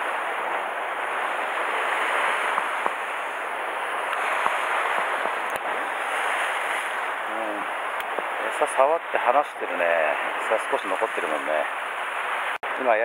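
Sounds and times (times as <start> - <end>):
surf washing against rocks: 0.0 - 13.0.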